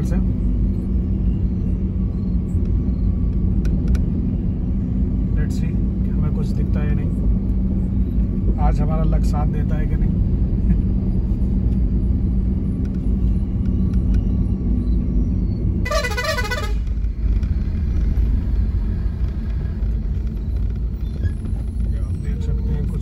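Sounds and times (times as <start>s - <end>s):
car engine and road rumble: 0.0s - 23.0s
vehicle horn honking: 15.9s - 16.9s.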